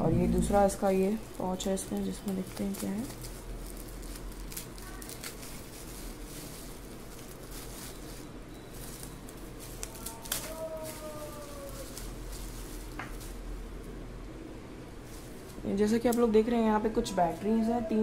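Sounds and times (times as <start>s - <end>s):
faint long falling note: 0.0s - 0.8s
low steady hum: 0.0s - 4.6s
bubble-wrap pouch crinkling: 1.3s - 13.5s.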